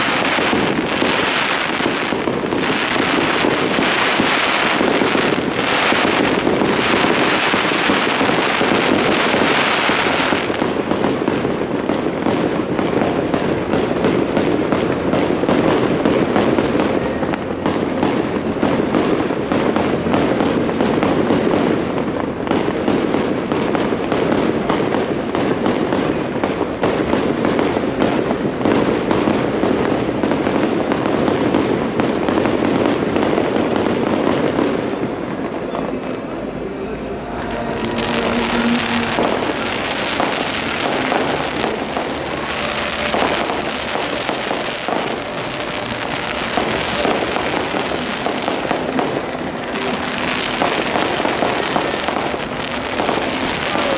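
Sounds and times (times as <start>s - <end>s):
fireworks crackling and popping: 0.0s - 53.9s
bright hissing rush: 36.0s - 53.9s.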